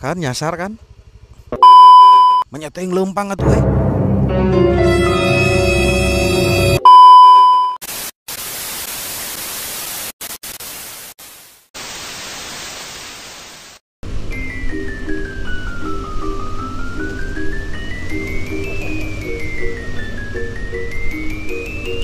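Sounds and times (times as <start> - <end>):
steady test-tone beep: 1.6 - 2.4, 6.8 - 7.8
background music: 3.4 - 6.8, 14.2 - 22.0
tv static hiss: 7.8 - 13.8.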